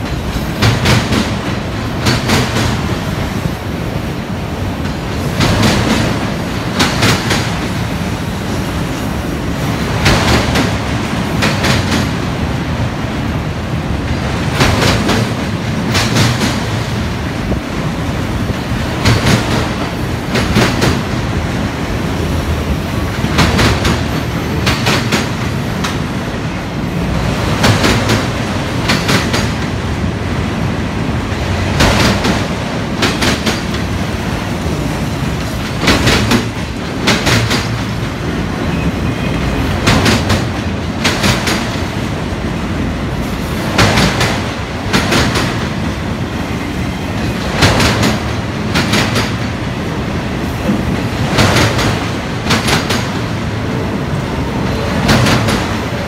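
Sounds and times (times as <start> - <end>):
steel wheels rumbling on rail: 0.0 - 56.0
wheels clickety-clack: 10.0 - 12.2, 27.4 - 29.8, 31.7 - 34.0, 34.7 - 42.0, 43.7 - 46.0, 47.2 - 49.6, 50.5 - 53.3, 54.7 - 56.0.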